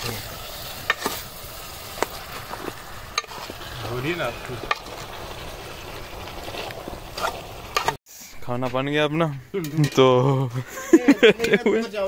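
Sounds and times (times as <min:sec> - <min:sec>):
food sizzling in a pot: 0:00.0 - 0:08.4.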